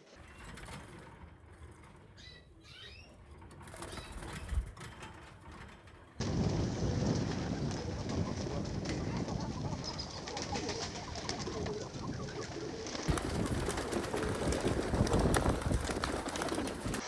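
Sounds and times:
wings flapping: 0:03.5 - 0:17.0
pigeons cooing: 0:06.4 - 0:17.0.

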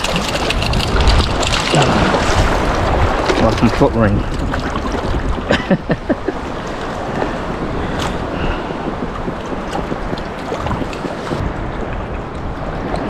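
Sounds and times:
water splash: 0:00.0 - 0:05.5
surf water lapping: 0:00.0 - 0:13.0
wind noise on microphone: 0:00.0 - 0:13.0.

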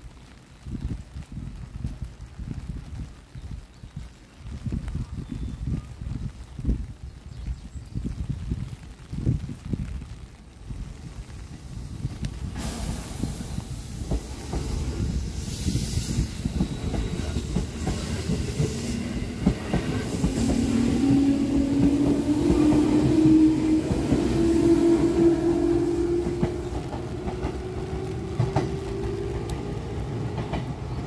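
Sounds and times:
train rumble: 0:09.8 - 0:31.0
train motor whine: 0:12.6 - 0:29.8
train wheels clacking over joints: 0:12.6 - 0:31.0.

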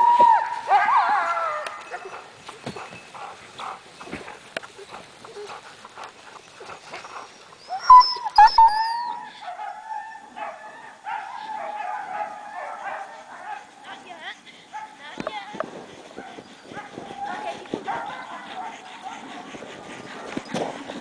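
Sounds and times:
dogs whining and yelping: 0:00.0 - 0:03.1, 0:07.1 - 0:13.6, 0:15.9 - 0:21.0.

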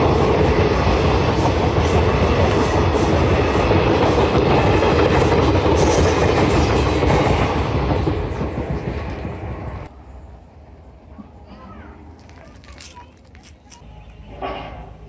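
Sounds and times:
train wheels clickety-clack: 0:00.0 - 0:09.9
train rolling rush: 0:00.0 - 0:15.0.

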